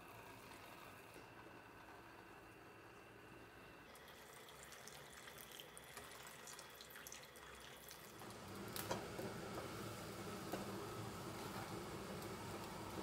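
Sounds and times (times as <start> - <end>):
liquid trickling into pot: 3.9 - 8.4.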